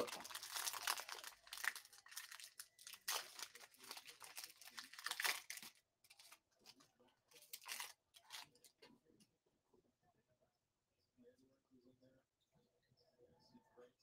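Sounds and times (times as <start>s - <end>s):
foil wrapper tearing and crinkling: 0.0s - 6.4s, 7.4s - 8.6s.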